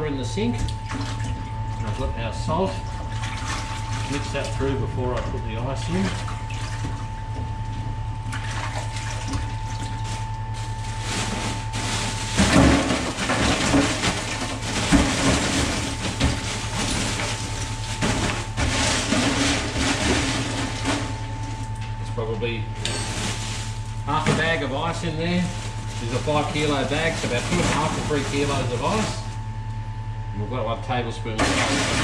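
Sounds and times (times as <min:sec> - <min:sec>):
steady low hum: 0:00.0 - 0:32.0
ice cubes clattering and splashing: 0:08.6 - 0:21.2, 0:23.0 - 0:24.6, 0:25.3 - 0:29.3, 0:31.4 - 0:32.0
plastic bag rustling: 0:09.9 - 0:21.2, 0:22.9 - 0:24.6, 0:25.3 - 0:29.4.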